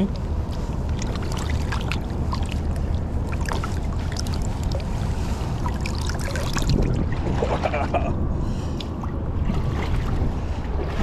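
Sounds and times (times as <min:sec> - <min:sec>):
small splashes and ticks: 0:00.0 - 0:07.2
flowing river water: 0:00.0 - 0:11.0
low rumble: 0:00.0 - 0:11.0.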